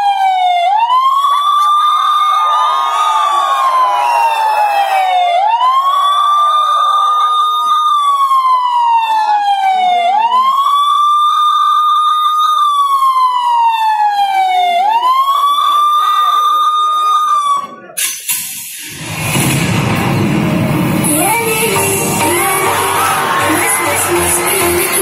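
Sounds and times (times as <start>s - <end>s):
wailing siren over loudspeakers: 0.0s - 17.8s, 21.0s - 25.0s
dance track: 18.9s - 25.0s.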